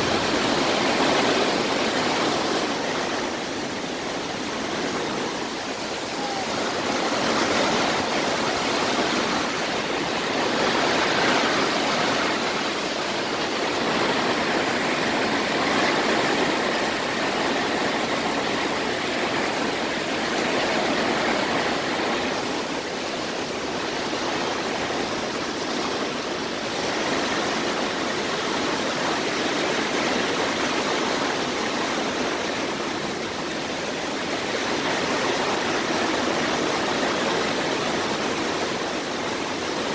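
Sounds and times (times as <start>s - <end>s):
heavy rain pouring: 0.0s - 39.9s.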